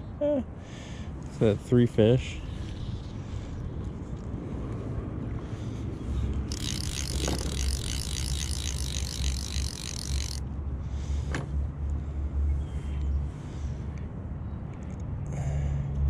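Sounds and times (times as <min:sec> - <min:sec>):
fly reel drag ratcheting: 0:06.5 - 0:10.4.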